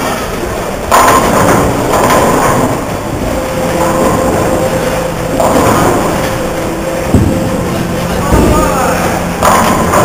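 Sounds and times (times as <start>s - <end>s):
bowling balls rolling: 0.0s - 10.0s
bowling pins clattering: 0.0s - 10.0s.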